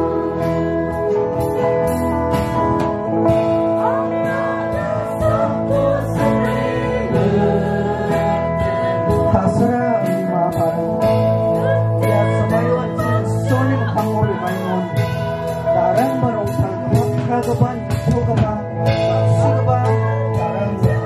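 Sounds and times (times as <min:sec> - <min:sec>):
voices singing a hymn: 0:00.0 - 0:01.5, 0:03.3 - 0:16.5
electric bass: 0:00.0 - 0:21.0.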